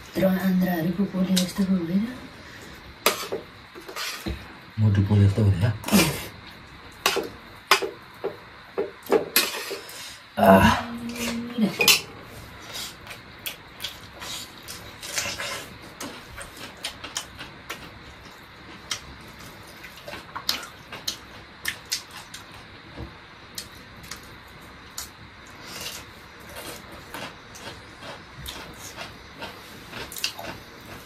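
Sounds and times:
chewing smacks: 24.9 - 31.0.

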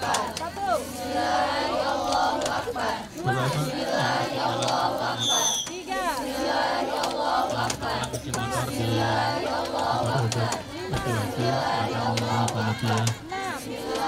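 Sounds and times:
crowd calling out and chanting: 0.0 - 14.0
high whistle-like tone: 5.2 - 5.8.

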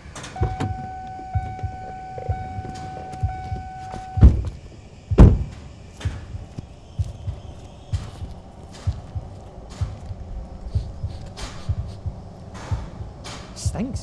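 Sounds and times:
steady high tone: 0.0 - 4.5
car door thudding: 0.2 - 6.4.

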